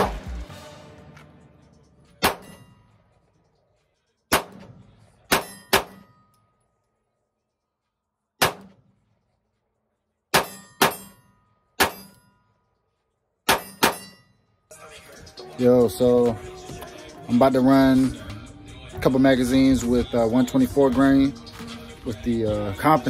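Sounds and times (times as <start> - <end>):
pistol shots: 2.2 - 2.7, 4.3 - 6.2, 8.4 - 9.0, 10.3 - 11.2, 11.8 - 12.2, 13.5 - 14.2.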